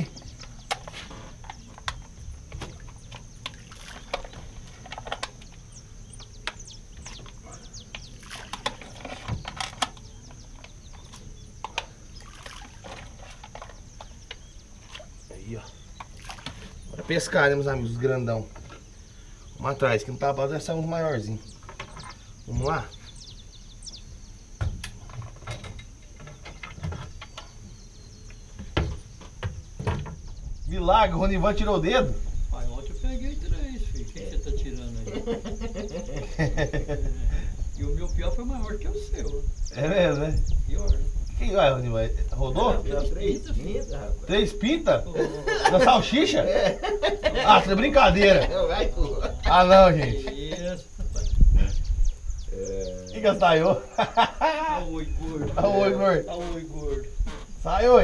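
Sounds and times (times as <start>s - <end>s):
birds chirping: 0.0s - 58.0s
high insect drone: 0.0s - 58.0s
bait splashing onto water: 2.6s - 4.5s, 8.2s - 8.9s, 11.8s - 13.2s, 16.1s - 16.8s.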